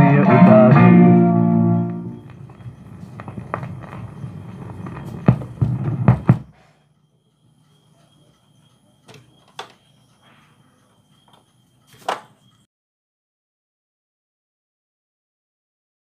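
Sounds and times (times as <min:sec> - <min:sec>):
record groove rumble: 0:00.0 - 0:06.6
faint hiss: 0:02.0 - 0:06.9
tonearm clicks and clunks: 0:07.0 - 0:12.6.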